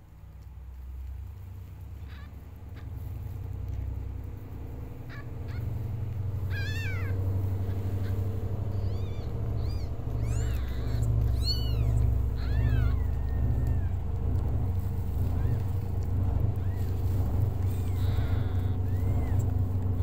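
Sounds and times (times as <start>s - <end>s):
steady low rumble: 0.0s - 20.0s
kittens mewing: 1.9s - 20.0s.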